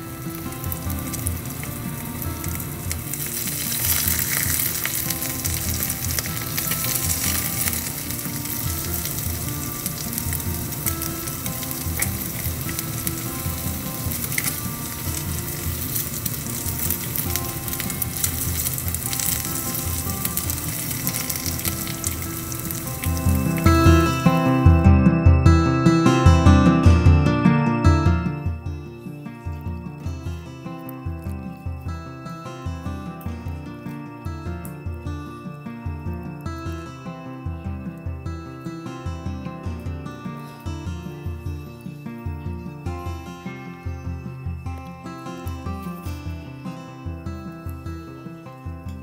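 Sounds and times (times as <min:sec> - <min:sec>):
eggs sizzling in frying pan: 0:00.0 - 0:24.0.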